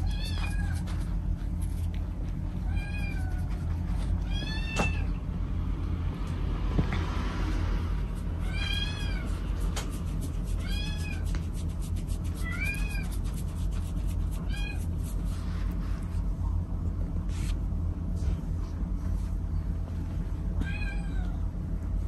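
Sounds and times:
steady low rumble: 0:00.0 - 0:22.0
cat meowing: 0:02.6 - 0:05.2, 0:08.4 - 0:09.4, 0:10.5 - 0:11.3, 0:12.4 - 0:13.2, 0:14.4 - 0:14.9, 0:20.6 - 0:21.4.

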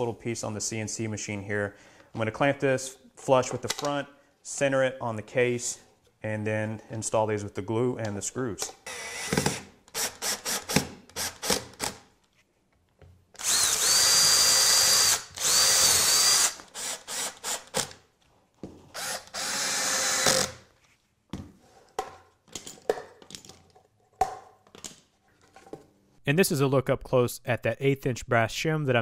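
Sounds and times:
cordless drill whining: 0:08.9 - 0:11.8, 0:13.4 - 0:18.0, 0:18.9 - 0:20.6.

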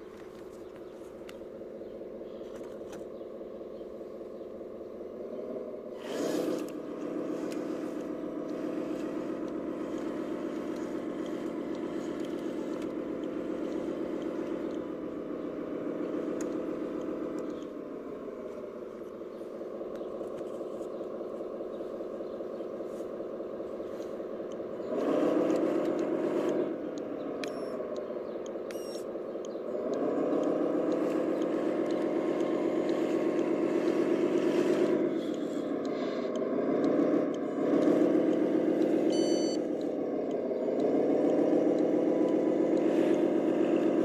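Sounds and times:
model truck engine drone: 0:00.0 - 0:44.0.

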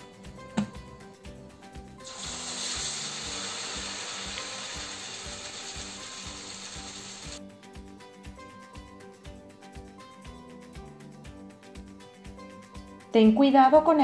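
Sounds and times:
background music with a beat: 0:00.0 - 0:13.9
food sizzling in hot oil: 0:02.0 - 0:07.4.

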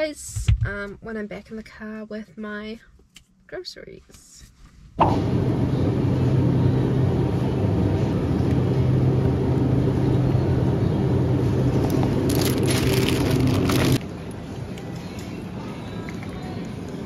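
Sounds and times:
refrigerated cabinet humming: 0:05.0 - 0:17.0.

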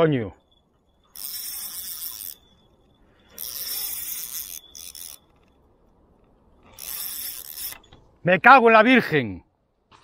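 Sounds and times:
fishing reel drag buzzing: 0:00.8 - 0:05.7, 0:06.6 - 0:08.0.

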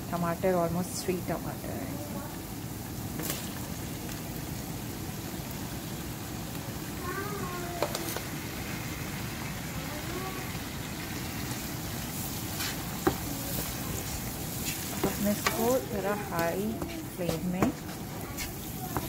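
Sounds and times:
food sizzling in a pan: 0:00.0 - 0:19.0
wooden spoon stirring: 0:11.2 - 0:19.0.

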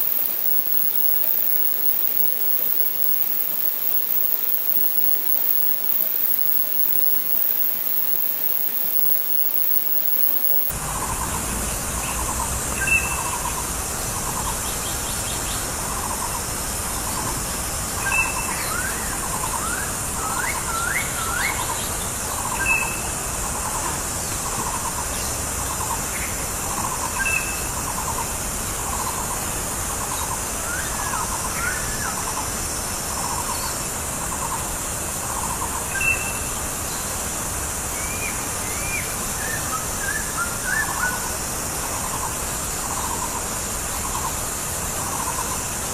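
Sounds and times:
steady high hiss: 0:00.0 - 0:10.7.

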